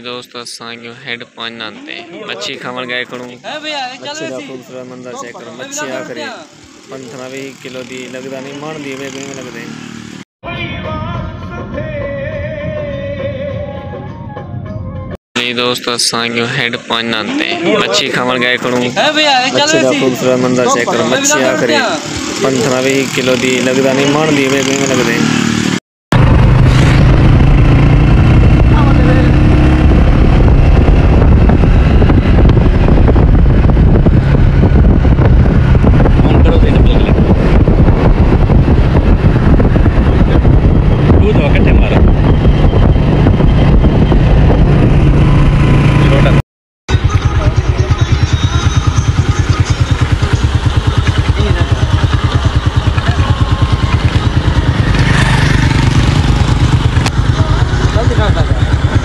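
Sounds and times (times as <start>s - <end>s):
motorcycle engine running: 2.6s - 10.2s, 16.3s - 59.0s
wind rushing over microphone: 24.6s - 46.4s, 48.8s - 59.0s
motorcycle engine idling: 46.9s - 59.0s.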